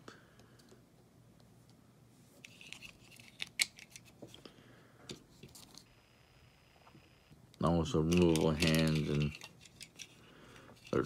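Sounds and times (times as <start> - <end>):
plastic parts clicking and rattling: 2.4 - 4.2, 8.0 - 11.0.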